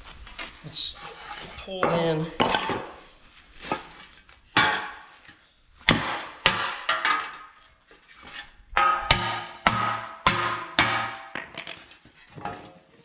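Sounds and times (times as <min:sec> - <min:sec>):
hammer striking metal: 0:04.6 - 0:05.1, 0:05.9 - 0:07.3, 0:08.8 - 0:11.6.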